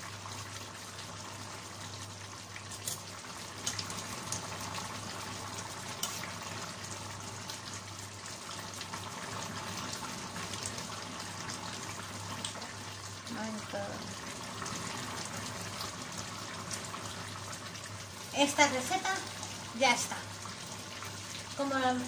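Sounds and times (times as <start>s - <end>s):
stew bubbling in a pan: 0.0s - 22.0s.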